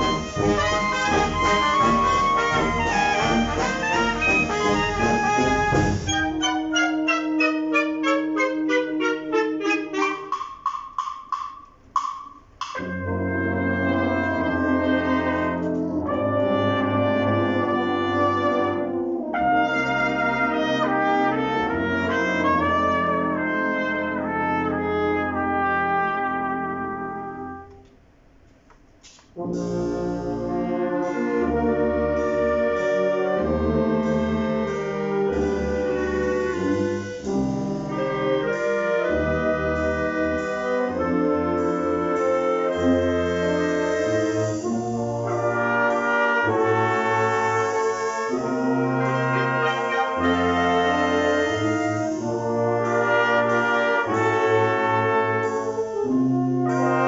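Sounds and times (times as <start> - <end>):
wind band playing film music: 0.0 - 11.4, 12.0 - 27.8, 29.4 - 57.0.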